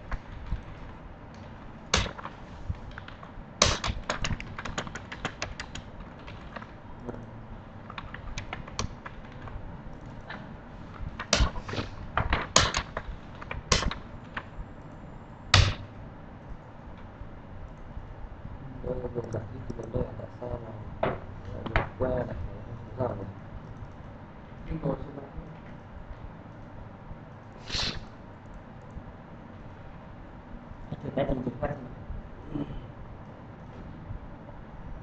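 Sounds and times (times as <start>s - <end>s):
computer keyboard typing: 0.0s - 16.0s, 23.6s - 24.2s.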